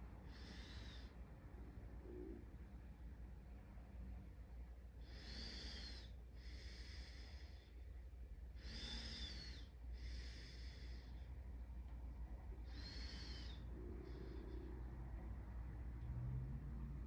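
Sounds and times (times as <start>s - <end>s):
person breathing through nose: 5.0s - 7.9s, 8.5s - 11.4s.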